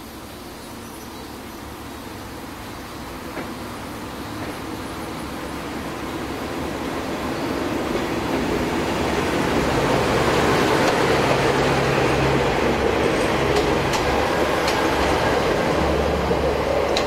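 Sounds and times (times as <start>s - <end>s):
train rolling past: 1.4s - 17.0s
rail-joint clicks: 3.3s - 3.6s, 4.4s - 4.6s, 10.8s - 11.4s, 13.1s - 15.2s.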